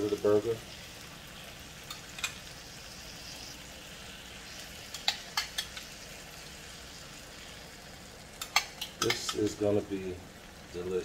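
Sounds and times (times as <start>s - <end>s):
meat sizzling in a pan: 0.0s - 11.0s
sharp clicks: 4.9s - 5.9s, 8.4s - 9.4s.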